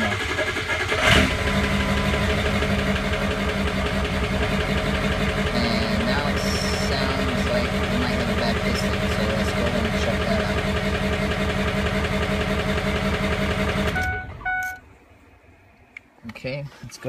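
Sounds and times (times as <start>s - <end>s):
diesel engine idling roughly: 0.0s - 14.0s
short electronic beeps: 13.9s - 14.9s.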